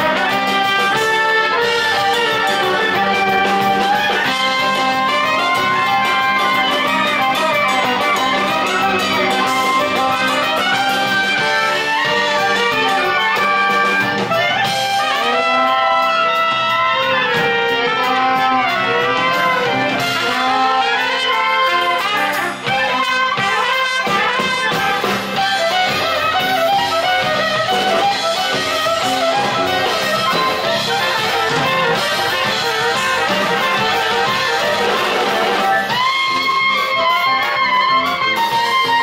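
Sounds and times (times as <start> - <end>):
accordion: 0.0 - 39.0
clarinet: 0.0 - 39.0
drums: 0.0 - 39.0
trumpet: 0.0 - 39.0
violin: 0.0 - 39.0.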